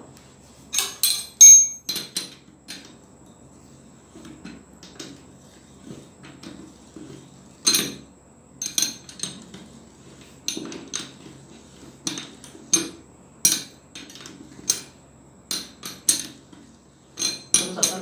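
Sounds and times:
spanner clinking on metal: 0.8 - 2.4, 17.2 - 18.0.

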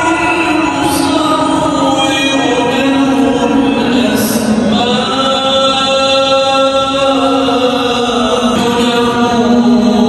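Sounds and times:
person chanting: 0.0 - 10.0.

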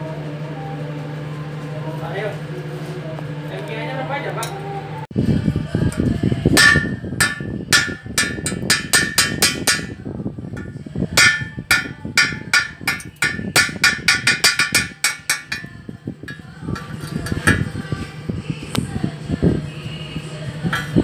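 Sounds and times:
chipping tool tapping metal: 6.6 - 10.0, 10.6 - 17.7.

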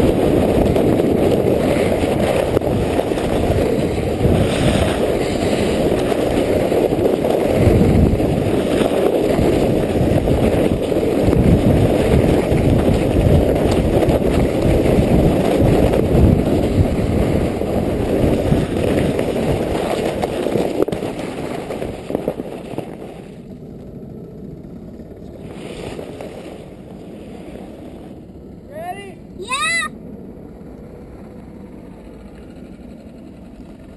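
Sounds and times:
sled scraping over snow: 0.0 - 23.8, 25.2 - 28.4.

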